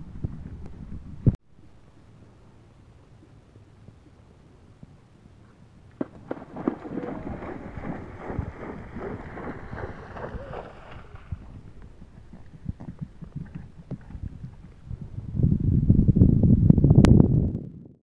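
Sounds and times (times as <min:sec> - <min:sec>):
hoofbeats on grass: 0:05.4 - 0:14.8
hooves splashing through water: 0:05.9 - 0:14.9.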